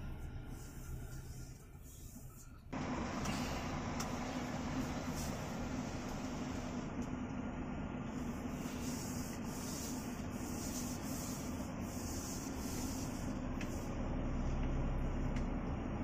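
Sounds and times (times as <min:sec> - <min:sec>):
lower engine note: 0:00.0 - 0:16.0
truck engine running: 0:00.0 - 0:16.0.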